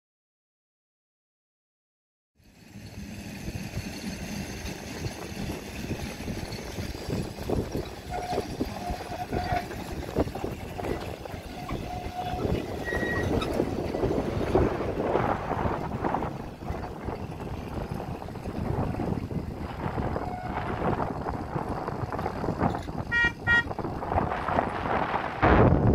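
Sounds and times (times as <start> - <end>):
tramcar rumbling on rails: 2.4 - 25.9
short squeals: 8.0 - 9.9, 10.7 - 14.1.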